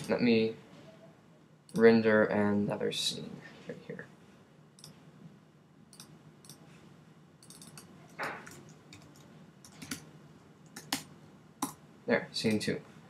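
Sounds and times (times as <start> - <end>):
keyboard and mouse clicks: 4.8 - 5.0, 5.9 - 6.6, 7.4 - 11.8.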